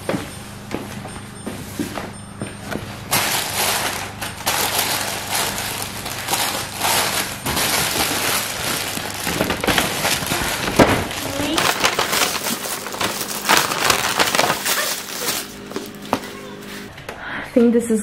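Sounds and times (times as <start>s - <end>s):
plastic bags crinkling: 3.1s - 16.6s.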